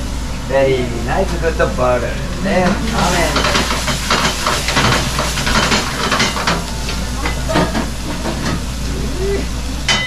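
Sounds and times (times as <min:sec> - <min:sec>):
food sizzling in a frying pan: 0:02.7 - 0:09.9.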